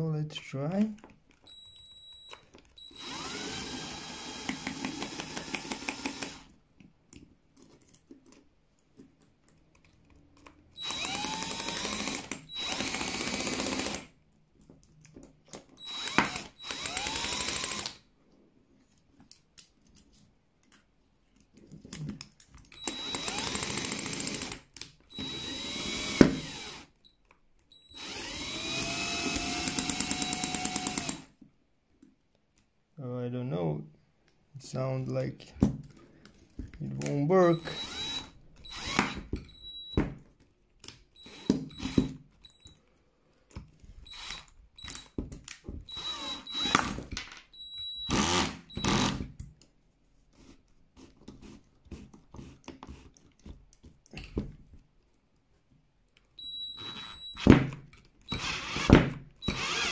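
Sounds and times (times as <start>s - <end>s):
cordless drill whining: 1.5s - 6.5s, 10.8s - 14.1s, 15.8s - 18.0s, 22.8s - 27.0s, 27.7s - 31.3s, 37.4s - 40.0s, 41.2s - 42.8s, 44.0s - 45.2s, 45.8s - 49.3s, 56.4s - 57.5s, 58.3s - 59.9s.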